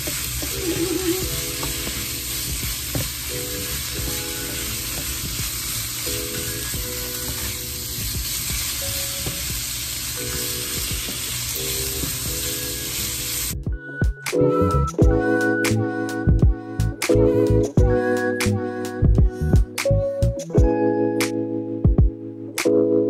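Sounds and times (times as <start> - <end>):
food sizzling in oil: 0.0 - 13.6.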